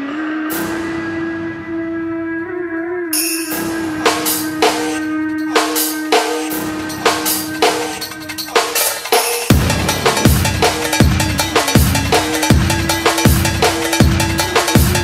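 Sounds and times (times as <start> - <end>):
dance drum beat: 3.8 - 15.0.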